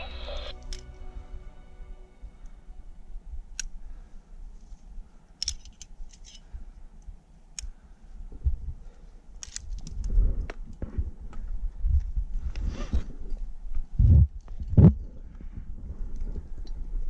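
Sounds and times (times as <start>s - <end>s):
low rumble: 0.0s - 4.5s.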